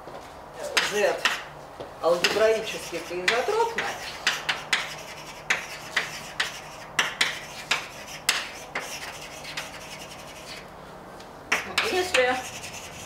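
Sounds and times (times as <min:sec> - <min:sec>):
chalk scraping on blackboard: 0:02.2 - 0:10.7, 0:11.5 - 0:13.0.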